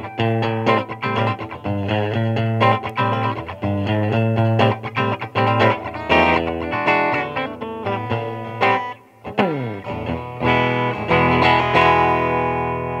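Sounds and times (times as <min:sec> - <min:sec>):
electric guitar through amp: 0:00.0 - 0:13.0.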